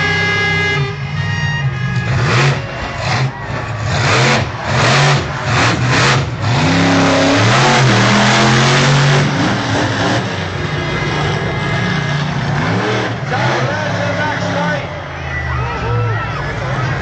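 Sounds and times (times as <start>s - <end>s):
monster truck engine revving: 0.0s - 17.0s.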